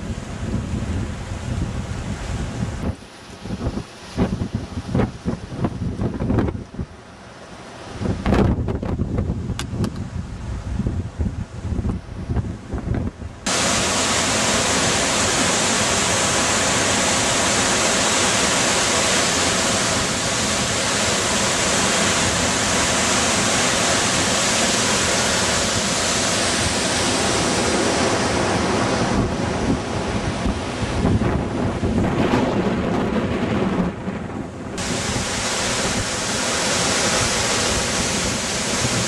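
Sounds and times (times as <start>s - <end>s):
wind buffeting microphone: 0.0s - 7.0s, 7.9s - 39.0s
waterfall rushing: 13.5s - 32.1s, 34.8s - 39.0s.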